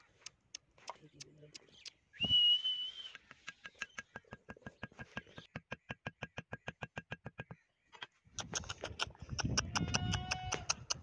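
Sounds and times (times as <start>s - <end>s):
high steady whistle: 2.2s - 3.2s
hoe hammering wooden stake: 3.4s - 7.6s.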